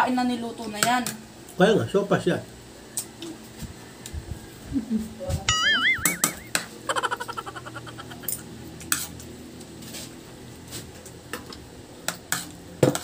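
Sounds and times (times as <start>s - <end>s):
high warbling trill: 5.5s - 8.4s
rapid chirps: 5.6s - 8.4s.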